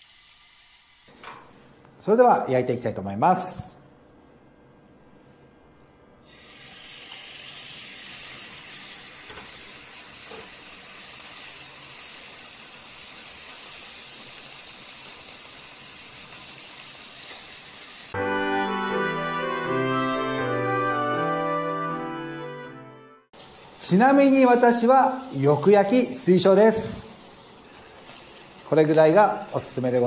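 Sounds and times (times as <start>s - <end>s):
meat sizzling in frying pan: 6.2s - 18.2s, 23.4s - 30.0s
loud brass music: 18.2s - 23.2s.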